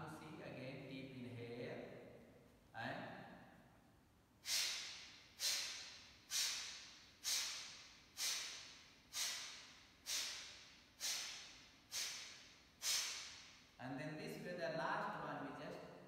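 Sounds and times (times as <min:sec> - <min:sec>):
man puffing breaths through nose: 0:04.4 - 0:13.6.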